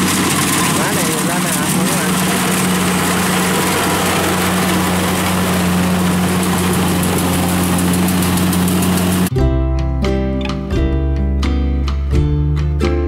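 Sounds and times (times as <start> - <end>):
combine harvester running: 0.0 - 9.3.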